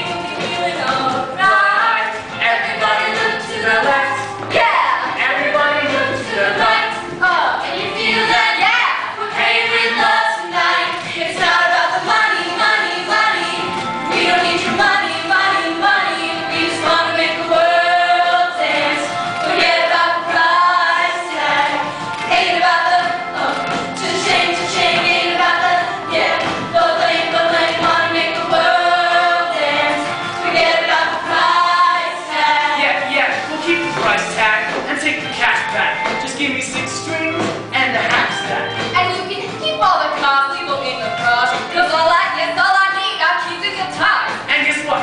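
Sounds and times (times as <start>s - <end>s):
young voices singing in chorus: 0.0s - 34.1s.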